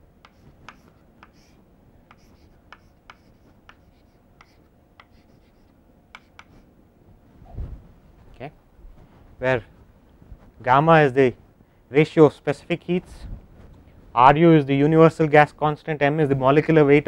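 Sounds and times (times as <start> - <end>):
chalk tapping and scratching blackboard: 0.2 - 6.7.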